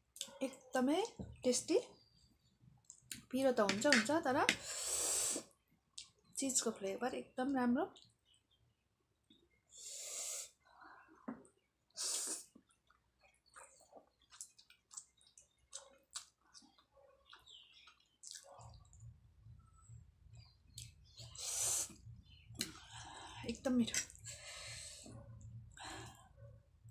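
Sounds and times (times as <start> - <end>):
wet chewing and mouth clicks: 12.4 - 19.1, 20.7 - 21.2, 21.9 - 22.9.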